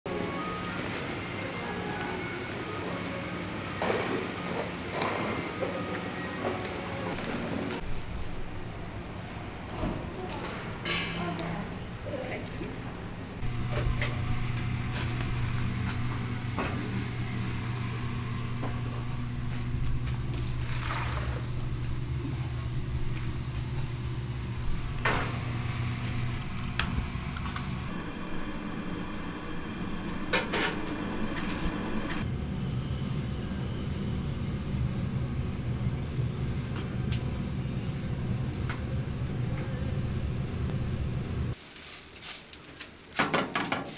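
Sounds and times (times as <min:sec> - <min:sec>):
steady low hum: 0:21.6 - 0:32.7.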